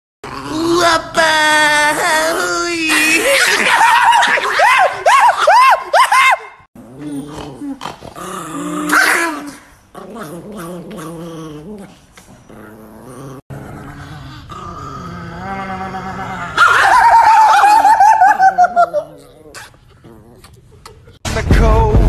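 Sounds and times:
dog growling: 0.2 - 0.9, 6.8 - 17.0, 18.6 - 21.2
small dog yapping: 8.8 - 9.6, 16.5 - 18.4.

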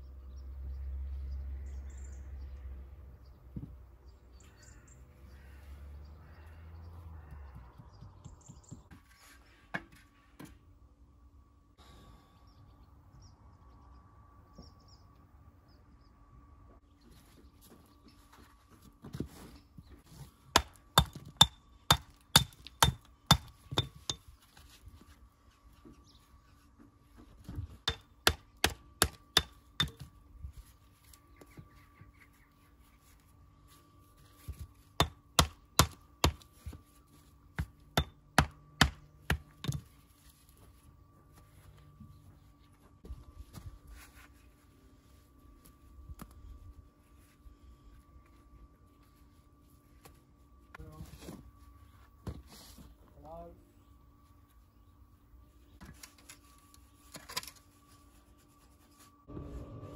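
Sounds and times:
faint steady hum: 9.3 - 59.9
hammer striking stone: 20.6 - 24.2.

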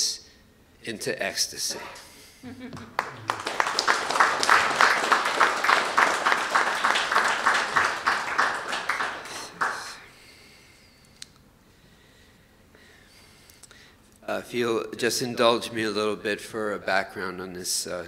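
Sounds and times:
audience applauding: 2.7 - 10.0.

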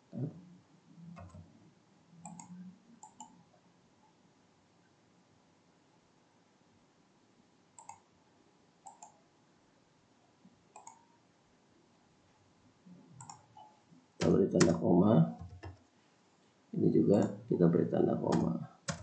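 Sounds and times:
faint computer mouse clicks: 2.2 - 3.4, 7.8 - 8.1, 8.8 - 9.2, 10.7 - 11.1, 13.2 - 14.8.

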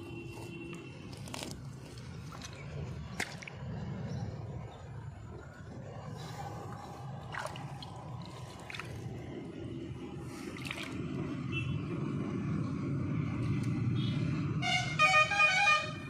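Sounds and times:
low outdoor rumble: 0.0 - 16.0
vehicle horn honks: 14.0 - 16.0.

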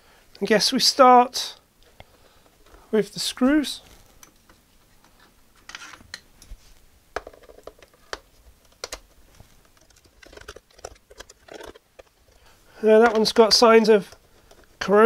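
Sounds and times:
light clicks taps and rustles: 7.2 - 14.9
hands handling plastic case: 7.2 - 15.0.

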